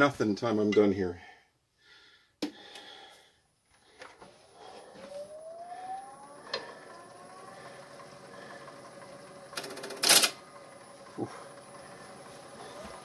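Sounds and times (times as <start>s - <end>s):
lathe motor whining: 3.8s - 13.0s.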